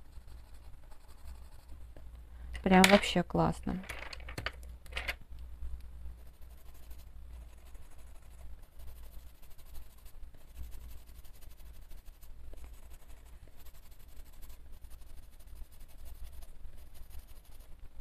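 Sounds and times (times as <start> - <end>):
coloured pencil scratching on paper: 0.0 - 1.9, 6.2 - 17.8.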